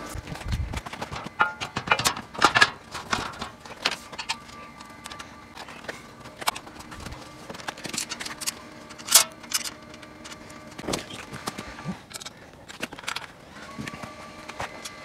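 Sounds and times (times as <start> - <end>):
metal panels knocking and clicking: 0.8 - 4.4.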